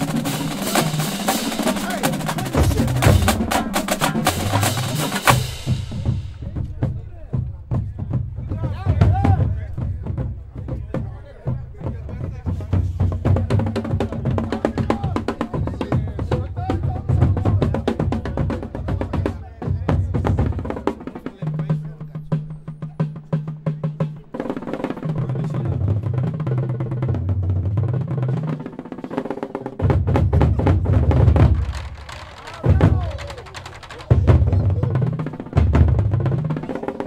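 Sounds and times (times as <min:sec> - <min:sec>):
bass drums playing low notes: 0:00.0 - 0:20.8, 0:32.6 - 0:36.6
crowd voices: 0:00.0 - 0:23.1, 0:30.4 - 0:37.0
rapid snare and tenor drums: 0:00.0 - 0:37.0.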